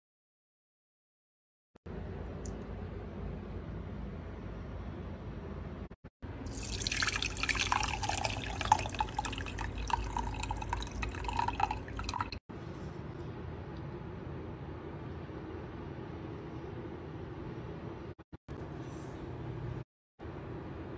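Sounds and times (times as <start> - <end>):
liquid pouring through strainer: 6.5 - 12.4.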